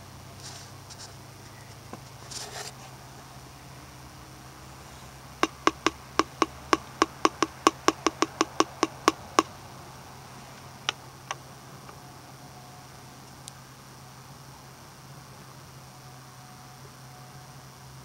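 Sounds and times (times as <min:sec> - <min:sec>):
fingertip tapping on glass: 0:05.4 - 0:09.5.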